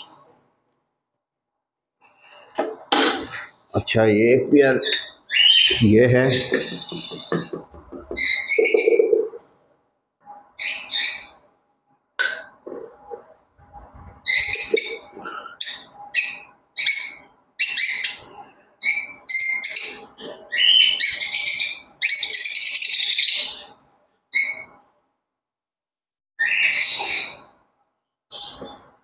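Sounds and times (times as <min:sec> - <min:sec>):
lovebirds shrieking: 0:04.8 - 0:09.4, 0:10.6 - 0:11.4, 0:14.2 - 0:24.7, 0:26.4 - 0:27.6, 0:28.3 - 0:28.8
knocks on wooden nest box: 0:06.5 - 0:08.4.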